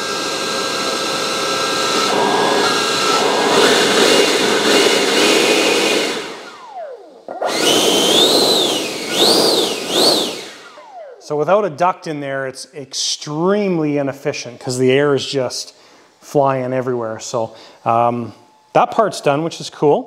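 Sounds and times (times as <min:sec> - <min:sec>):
electric fan whining: 0:00.0 - 0:12.5.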